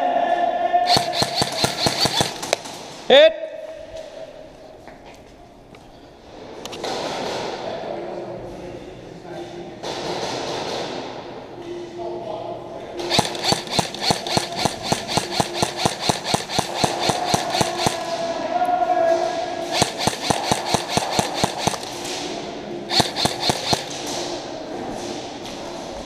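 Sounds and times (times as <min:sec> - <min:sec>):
airsoft guns firing rapidly: 0:00.9 - 0:03.0, 0:13.0 - 0:18.4, 0:19.6 - 0:24.3.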